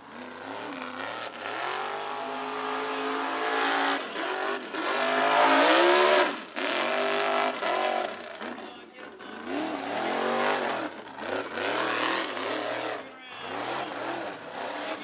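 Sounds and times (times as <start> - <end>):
truck engine revving: 0.0 - 15.0.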